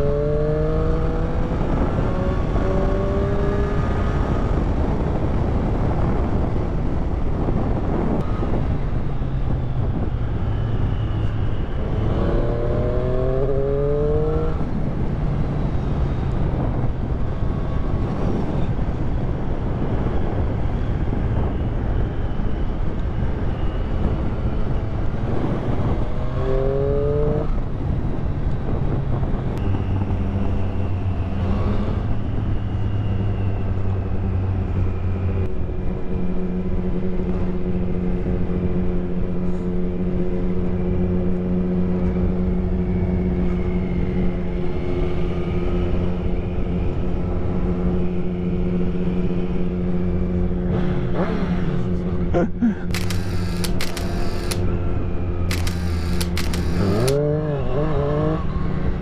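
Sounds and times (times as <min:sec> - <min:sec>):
wind rush on microphone: 0:00.0 - 0:52.2
motorcycle engine running: 0:52.9 - 0:58.9.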